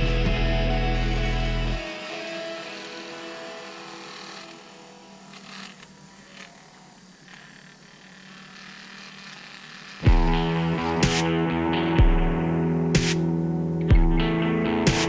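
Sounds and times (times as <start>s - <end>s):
drill bit scraping plastic: 1.9s - 10.1s.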